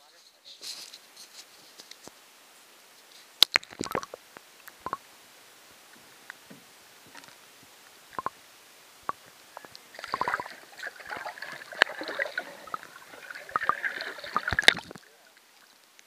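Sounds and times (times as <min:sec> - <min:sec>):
sharp clicks underwater: 0:03.4 - 0:05.0, 0:08.1 - 0:08.4, 0:09.0 - 0:15.1
water splashing and bubbling underwater: 0:03.5 - 0:05.1, 0:08.1 - 0:08.4, 0:09.0 - 0:16.0.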